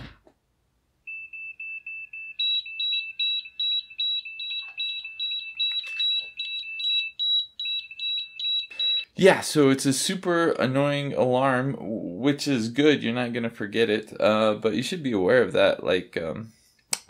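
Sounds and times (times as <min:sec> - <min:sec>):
rapid high-pitched alarm beeps: 0:01.1 - 0:09.1
higher alarm beep: 0:01.1 - 0:09.2.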